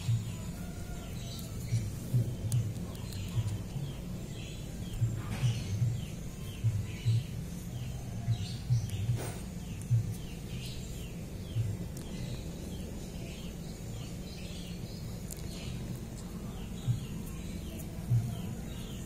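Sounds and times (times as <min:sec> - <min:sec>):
small birds chirping: 0:00.0 - 0:19.0
steady low hum: 0:00.0 - 0:19.0.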